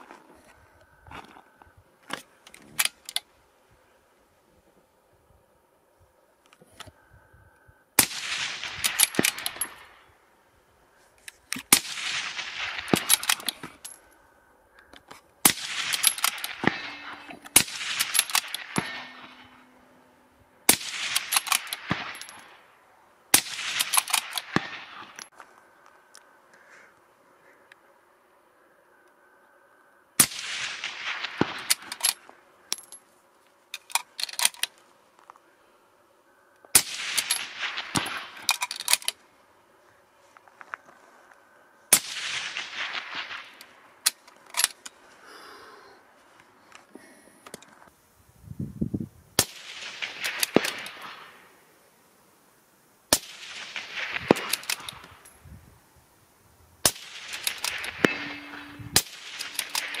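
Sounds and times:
suppressed rifle shots with echo: 8.0s - 9.9s, 11.7s - 13.7s, 15.4s - 22.6s, 23.3s - 25.2s, 30.2s - 32.2s, 36.7s - 38.4s, 41.9s - 43.8s, 49.4s - 51.4s, 53.1s - 55.1s, 56.8s - 60.0s.

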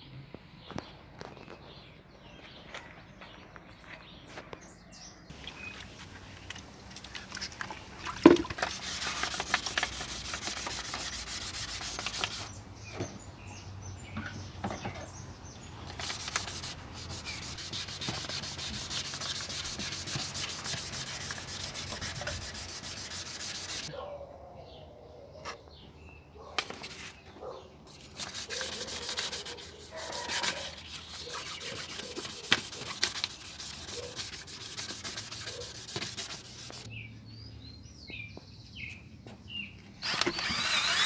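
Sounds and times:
sandpaper rubbing on plastic: 8.6s - 12.6s, 16.0s - 23.9s, 27.9s - 36.9s, 40.0s - 41.0s.

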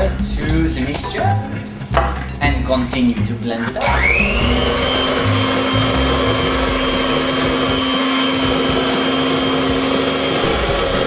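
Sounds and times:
electric mixer motor running: 3.8s - 11.0s.

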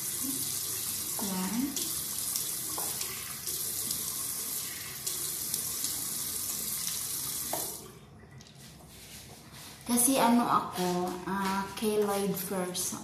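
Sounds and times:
tap water running into sink: 0.0s - 8.6s.

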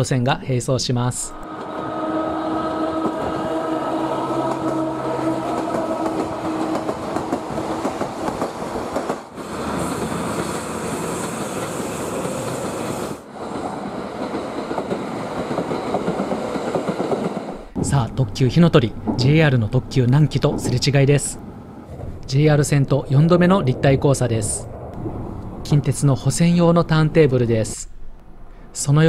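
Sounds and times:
diesel locomotive passing: 1.2s - 29.0s
express electric train passing: 1.3s - 29.0s
electric train whining: 1.4s - 17.8s.

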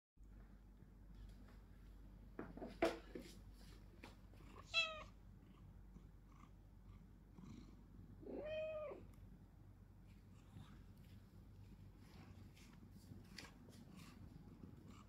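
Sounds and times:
cat meowing: 4.6s - 5.1s, 8.2s - 9.1s.

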